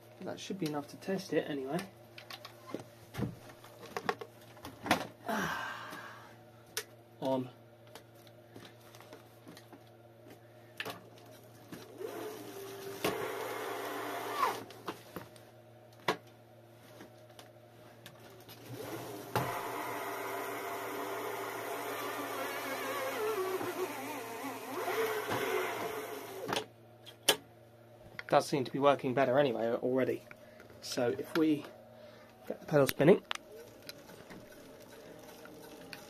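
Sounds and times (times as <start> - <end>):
electric motor whining: 18.8 - 26.5.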